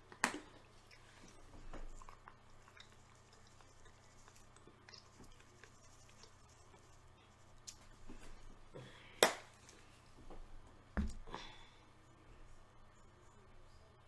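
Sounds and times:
chewing and mouth sounds: 0.1s - 7.8s.

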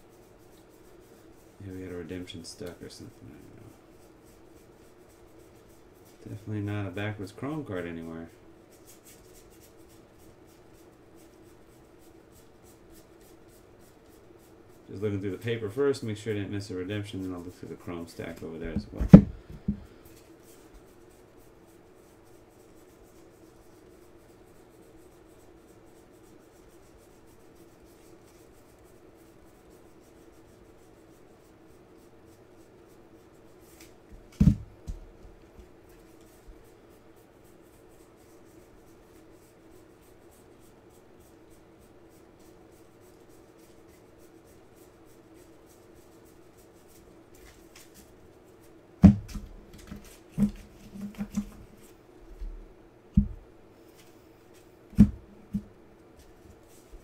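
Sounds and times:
faint steady hum: 0.0s - 57.0s.

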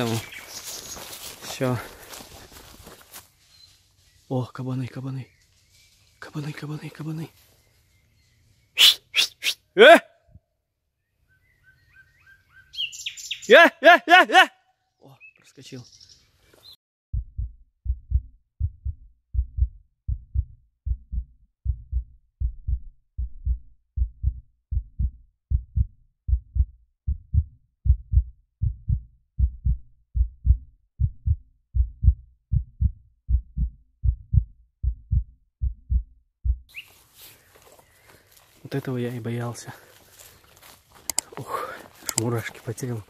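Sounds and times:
heartbeat double thumps: 17.1s - 36.7s.

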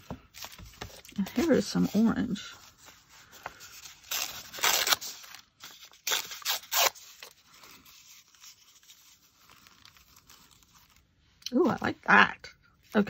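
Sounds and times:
paper rustling: 0.0s - 11.2s
paper tearing: 3.6s - 11.0s.

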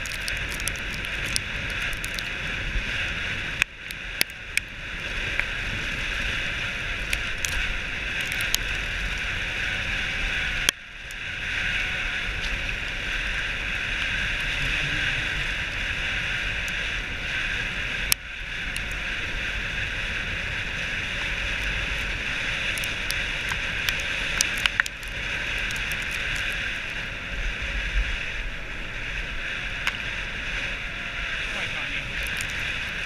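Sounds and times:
sharp clicks from sled: 0.0s - 14.6s, 18.0s - 27.1s, 31.2s - 33.0s.

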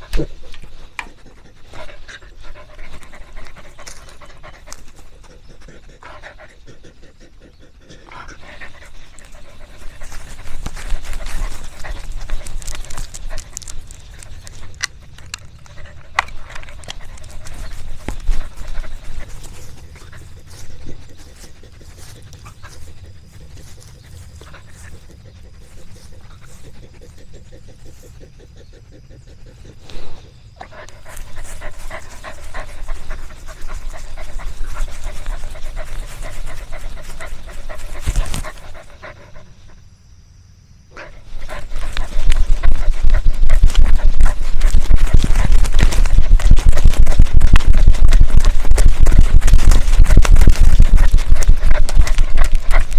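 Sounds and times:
dog moving about: 8.4s - 27.2s, 30.6s - 39.2s, 41.3s - 52.9s
steady low rumble: 8.4s - 39.8s, 41.1s - 52.9s
sharp clicks and taps: 9.0s - 22.4s.

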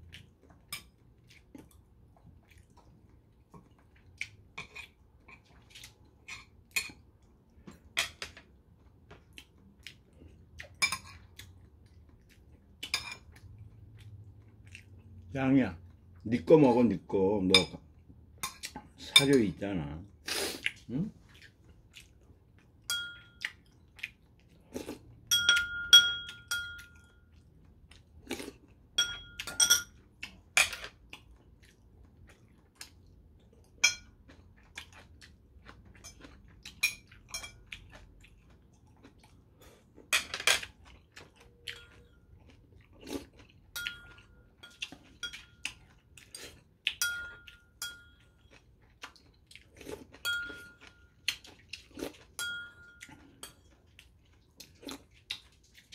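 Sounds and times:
chewing: 0.0s - 16.0s, 20.5s - 25.2s, 29.4s - 55.9s
utensils clinking on ceramic bowls: 12.9s - 13.3s, 22.9s - 23.4s, 25.3s - 27.2s, 29.0s - 30.0s, 33.8s - 34.1s, 36.8s - 37.7s, 43.7s - 45.8s, 47.0s - 48.5s, 50.2s - 51.2s, 52.4s - 53.7s.

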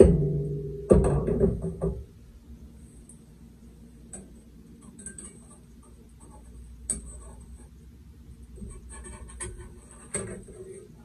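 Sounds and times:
drum hit ringing: 0.0s - 1.8s.

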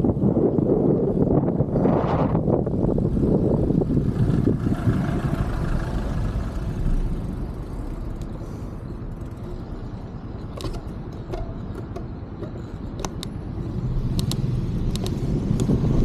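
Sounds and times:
wind on microphone: 0.0s - 8.0s, 12.4s - 16.0s
motor vehicle rumble: 0.0s - 16.0s.

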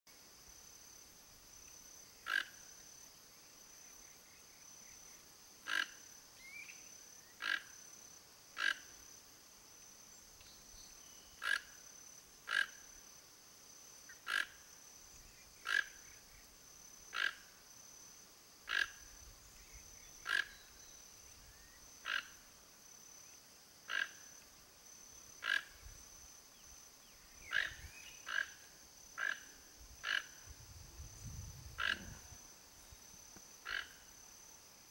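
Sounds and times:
toucan croaking: 14.2s - 14.6s, 25.4s - 25.8s, 27.4s - 28.6s, 29.2s - 30.4s, 31.8s - 32.2s, 33.6s - 34.0s.

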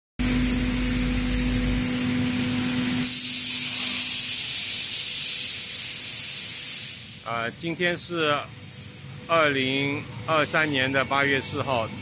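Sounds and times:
machine hum: 0.2s - 4.6s, 7.2s - 12.0s
air hiss: 3.0s - 8.8s.

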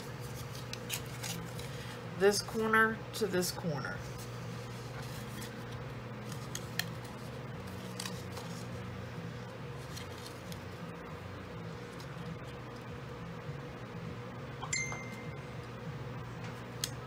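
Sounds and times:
paper rustling and scraping: 0.0s - 2.0s, 4.0s - 8.9s, 9.8s - 10.8s
steady low hum: 0.0s - 17.0s.

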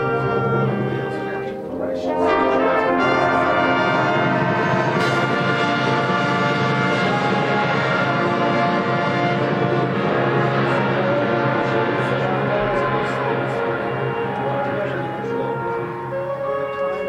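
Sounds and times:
marching band brass chords: 0.0s - 17.0s.

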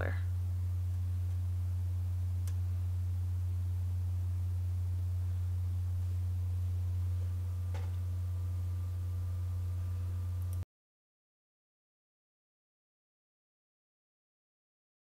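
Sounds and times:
loud low hum: 0.0s - 10.6s
faint click: 2.4s - 2.6s.

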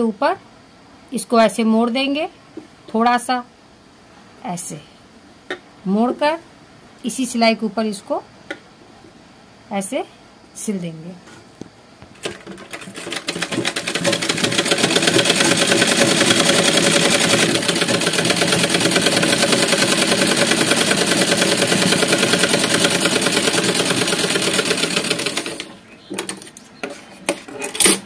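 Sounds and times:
sewing machine clattering: 12.2s - 26.4s.

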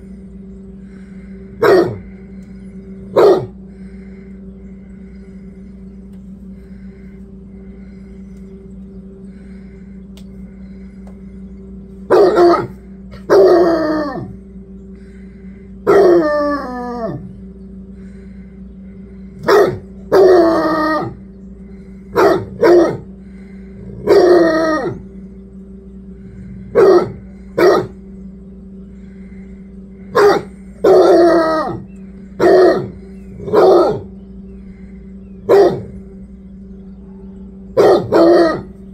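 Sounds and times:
steady low hum: 0.0s - 38.9s
dog barking and baying: 1.6s - 2.0s, 3.1s - 3.6s, 12.1s - 14.3s, 15.9s - 16.4s, 19.4s - 21.2s, 22.1s - 23.1s, 24.0s - 25.0s, 26.7s - 28.0s, 30.1s - 31.8s, 32.4s - 34.1s, 35.5s - 35.9s, 37.8s - 38.7s.

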